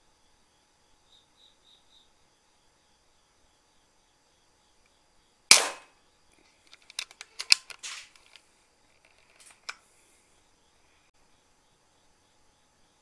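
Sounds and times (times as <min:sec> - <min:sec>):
air rifle shot: 0:05.5 - 0:05.9.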